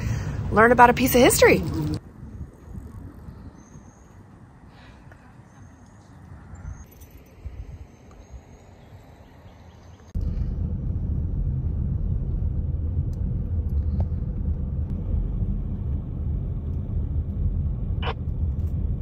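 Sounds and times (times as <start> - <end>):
outdoor ambience: 0.0 - 19.0
car driving rumble from cabin: 10.1 - 19.0.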